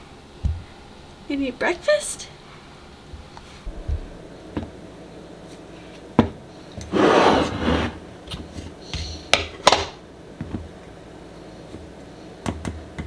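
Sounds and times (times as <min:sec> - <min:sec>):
scraping rubbing sound: 0:06.9 - 0:08.0.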